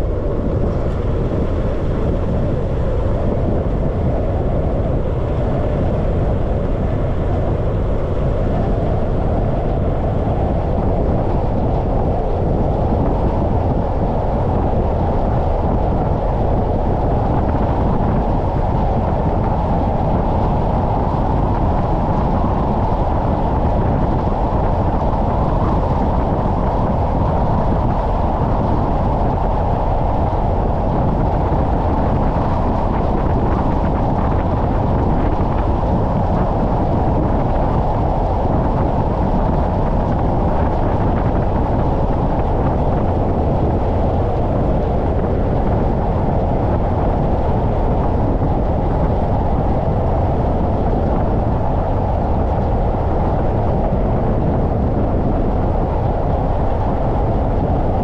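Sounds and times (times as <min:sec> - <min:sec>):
wind rushing over camera: 0:00.0 - 0:58.0.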